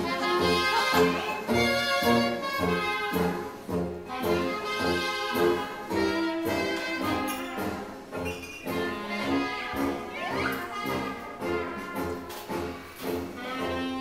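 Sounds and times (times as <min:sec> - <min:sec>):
brass belly dance music: 0:00.0 - 0:14.0.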